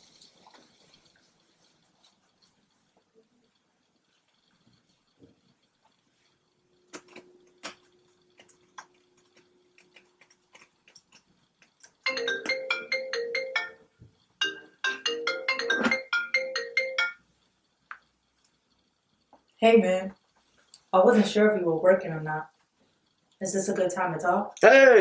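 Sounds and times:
mobile phone ringtone melody: 12.1s - 17.2s.

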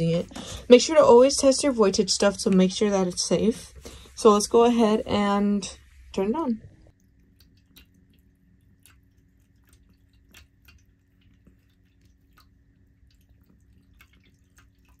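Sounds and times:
faint steady hum: 0.0s - 15.0s
water trickling and dripping: 6.9s - 15.0s.

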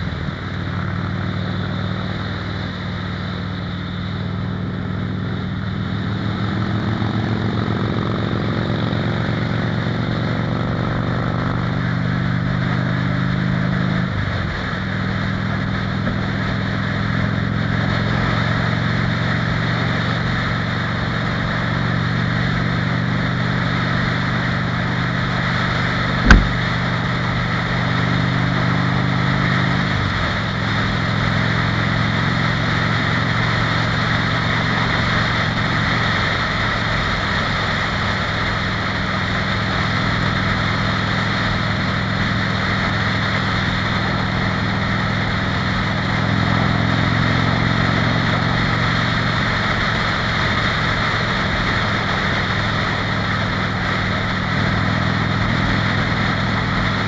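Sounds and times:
motorcycle engine running: 21.2s - 27.9s
sharp knock: 26.2s - 26.7s.

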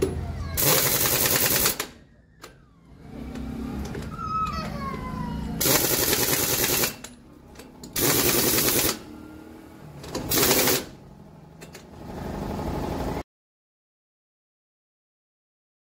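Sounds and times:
pneumatic impact wrench hammering: 0.6s - 2.0s, 5.6s - 9.1s, 10.0s - 11.0s.

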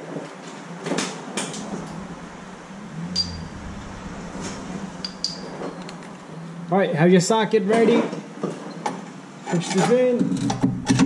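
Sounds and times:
steady low hum: 1.5s - 6.9s.

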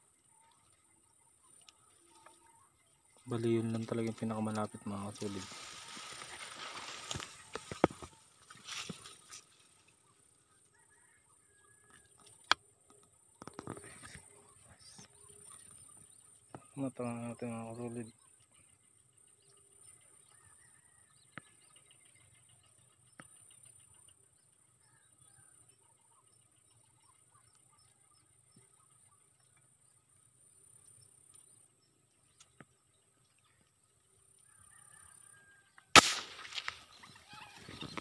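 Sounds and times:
faint bird chirps: 0.0s - 38.0s
rustling: 3.3s - 10.2s
airgun shot: 35.9s - 36.9s.

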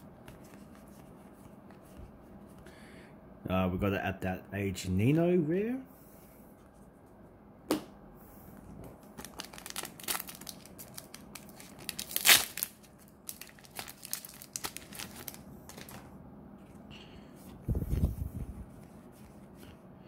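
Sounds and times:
wrapper crinkling: 9.0s - 16.1s
wrapper ripping: 9.1s - 16.1s.

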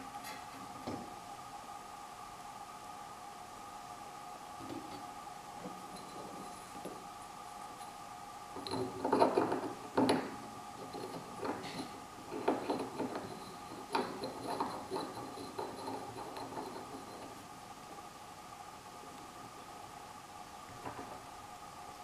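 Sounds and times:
metallic clicks and scrapes: 8.6s - 17.4s.

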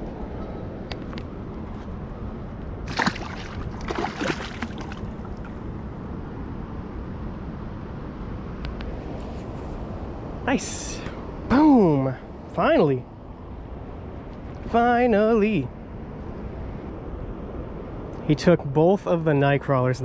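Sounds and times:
shallow river water splashing: 2.8s - 5.9s.

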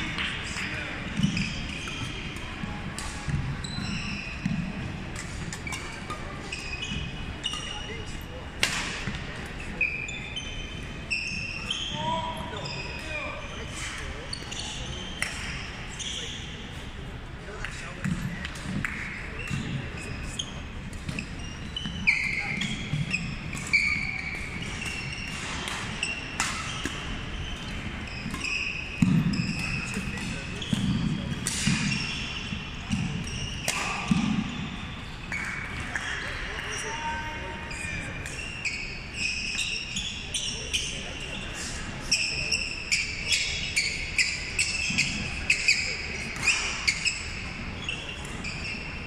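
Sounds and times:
racket hitting shuttlecock: 8.6s - 9.2s, 22.1s - 36.2s.

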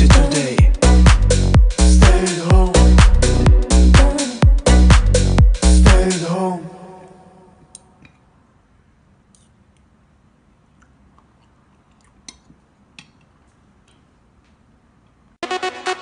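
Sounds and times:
music: 0.0s - 7.0s, 15.4s - 16.0s.

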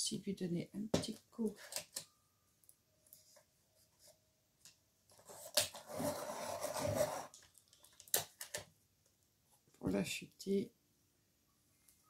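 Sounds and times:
pencil being sharpened: 5.2s - 7.4s.

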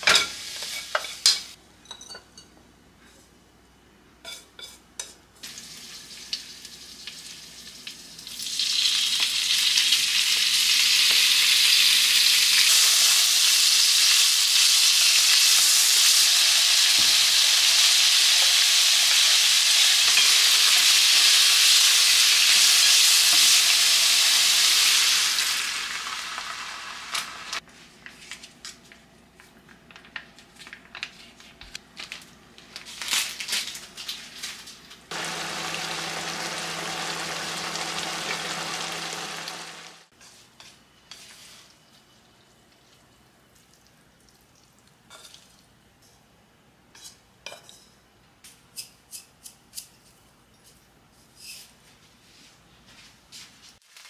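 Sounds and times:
beef sizzling in hot oil: 5.4s - 27.6s, 35.1s - 40.1s.

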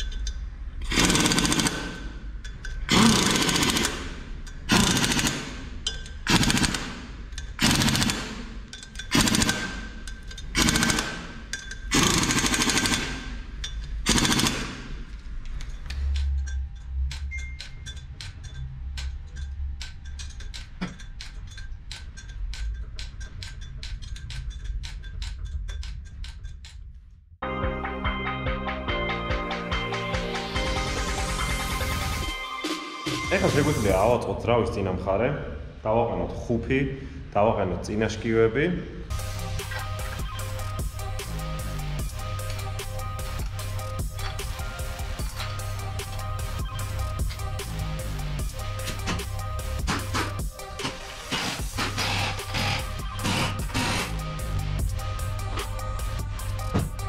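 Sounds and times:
pneumatic impact wrench hammering: 0.8s - 2.2s, 2.8s - 15.1s, 39.1s - 55.8s.

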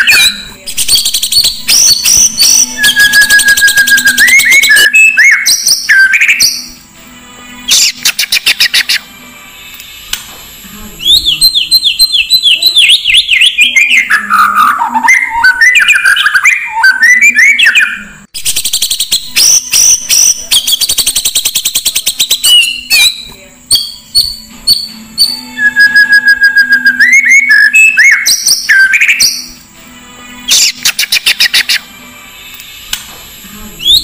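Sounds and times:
bird singing whistled notes: 0.0s - 6.8s, 11.0s - 29.6s, 33.8s - 34.0s.

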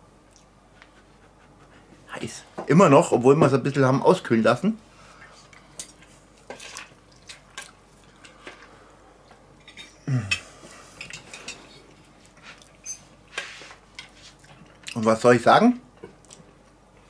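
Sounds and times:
man's short vocal sound: 10.0s - 10.4s.

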